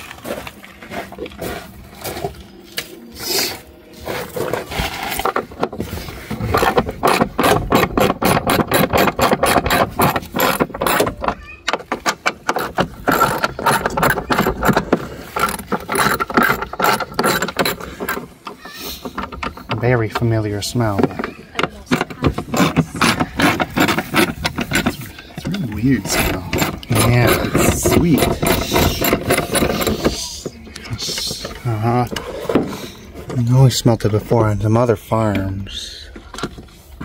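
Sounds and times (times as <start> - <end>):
handling noise: 0.0 - 34.4
ratchet tool clicking: 6.5 - 19.7, 26.1 - 30.2.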